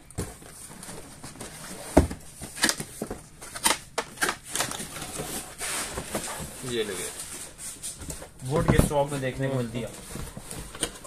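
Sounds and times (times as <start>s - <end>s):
cardboard scraping and rustling: 4.5s - 11.0s.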